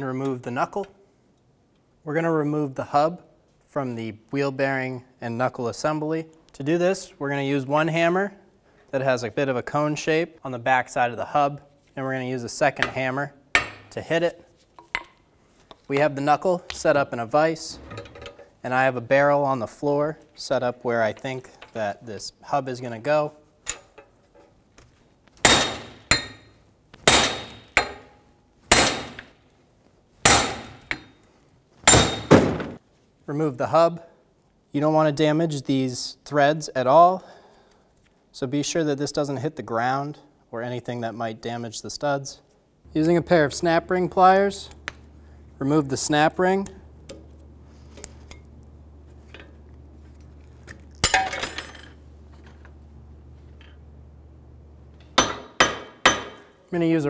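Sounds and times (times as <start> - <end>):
hammer striking metal: 13.6 - 13.9, 25.4 - 26.5, 27.1 - 29.3, 30.3 - 31.1, 31.9 - 32.4, 55.0 - 56.6.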